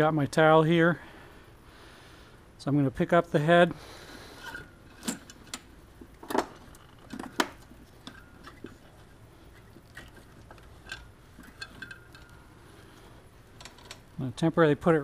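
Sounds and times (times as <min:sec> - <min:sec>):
metallic clinks and knocks: 0:04.4 - 0:12.5.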